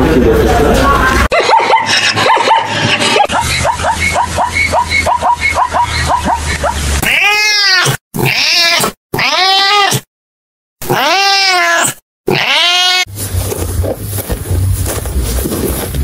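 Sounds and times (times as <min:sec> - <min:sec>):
dog yipping: 0:01.3 - 0:07.9
cat meowing: 0:07.0 - 0:10.1, 0:10.8 - 0:13.1.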